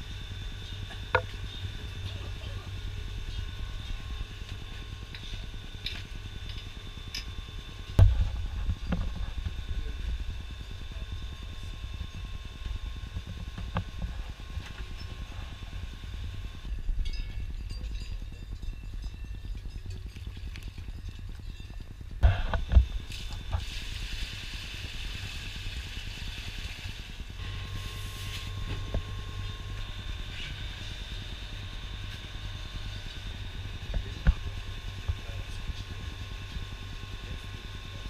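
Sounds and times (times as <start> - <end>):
milking machine vacuum pump hum: 19.3 - 38.0.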